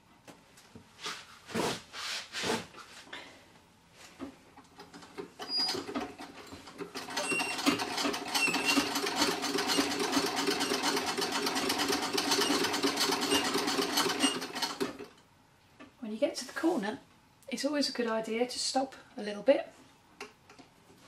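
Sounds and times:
treadle sewing machine stitching: 4.9s - 15.1s.

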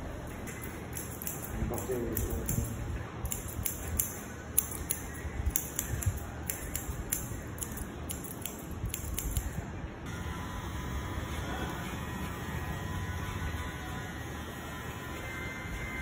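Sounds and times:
scissors snipping hair: 0.4s - 9.6s.

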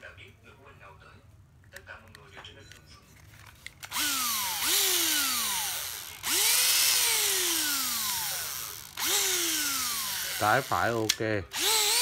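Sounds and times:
cordless drill motor whine: 3.9s - 12.0s.

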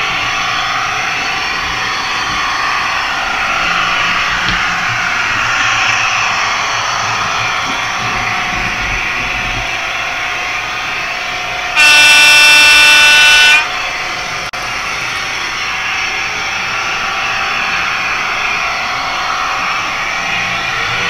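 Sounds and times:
model locomotives running: 0.0s - 21.0s
model diesel horn: 11.7s - 14.5s.

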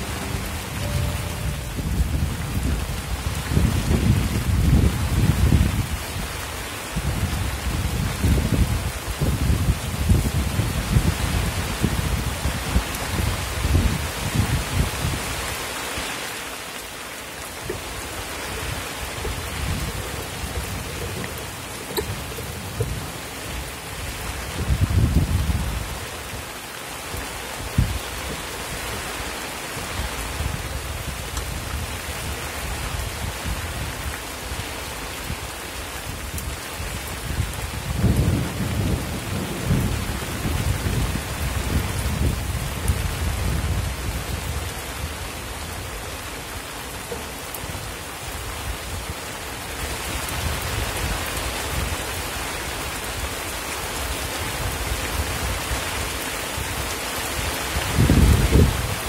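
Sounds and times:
low rumbles: 0.0s - 4.8s, 17.4s - 25.6s
rain falling on water: 0.0s - 59.0s.

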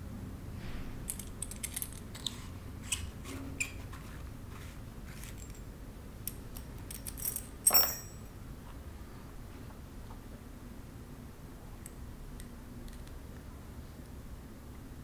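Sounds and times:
small metallic clicks and clinks: 1.1s - 2.3s, 5.2s - 8.3s
metal piece set down ringing: 7.7s - 8.2s.

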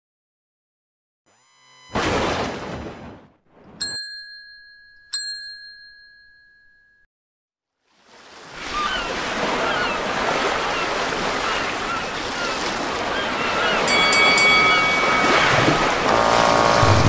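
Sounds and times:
ocean surf washing: 8.1s - 17.0s
birds chirping: 10.7s - 16.4s
bright ding: 13.9s - 15.5s.

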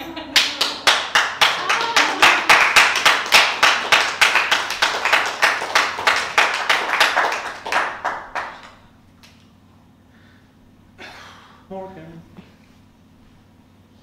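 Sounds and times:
small audience clapping: 0.0s - 9.4s.

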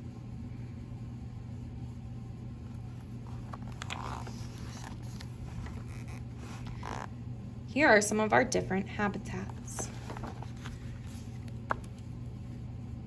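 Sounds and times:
steady low hum: 0.0s - 13.0s
paper page turning: 2.7s - 7.1s, 9.5s - 12.1s.

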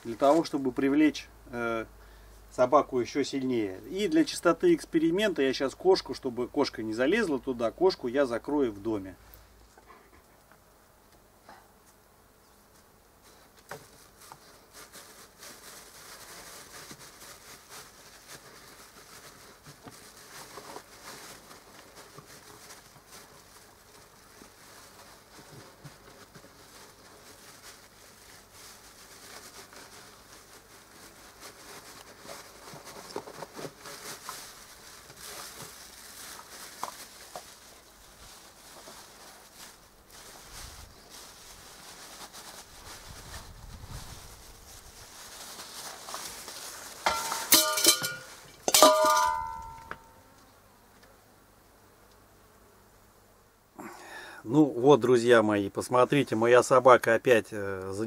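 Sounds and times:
dog rummaging in a food bag: 14.2s - 50.1s.

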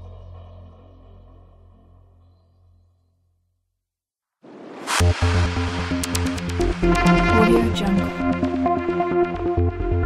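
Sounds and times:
electronic dance music: 5.9s - 8.2s.

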